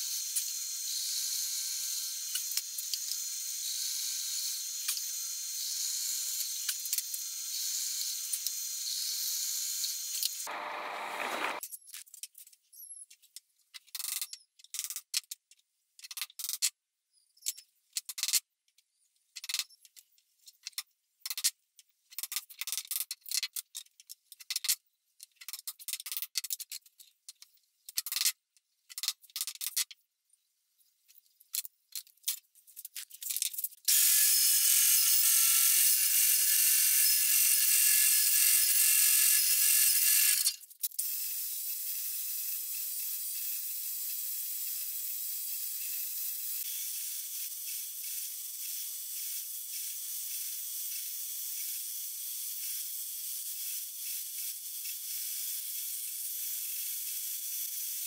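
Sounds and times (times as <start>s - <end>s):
belt sander on wood: 3.6s - 11.6s.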